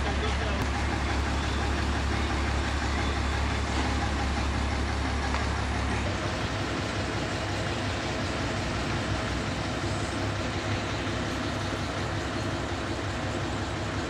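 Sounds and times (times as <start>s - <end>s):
crane engine running: 0.0s - 14.0s.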